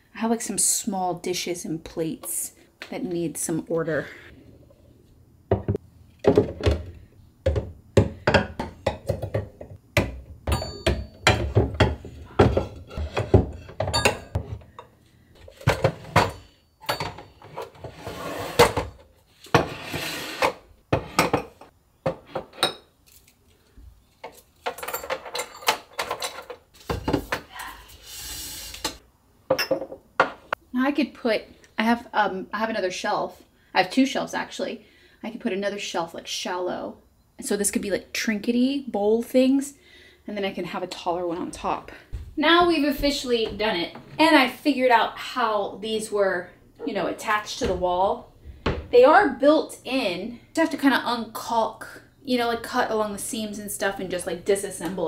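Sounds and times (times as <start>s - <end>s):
dishes knocking and clinking: 5.5s - 14.9s, 15.5s - 17.8s, 20.9s - 22.9s, 24.2s - 27.5s, 29.5s - 30.5s.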